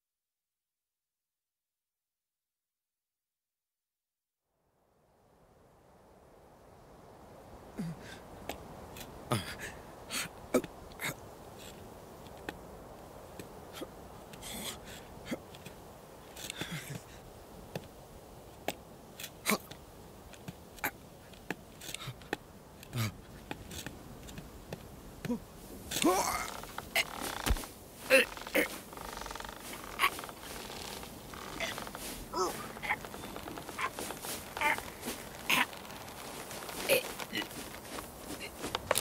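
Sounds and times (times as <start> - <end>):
sheep hooves on rock: 26.0 - 39.0.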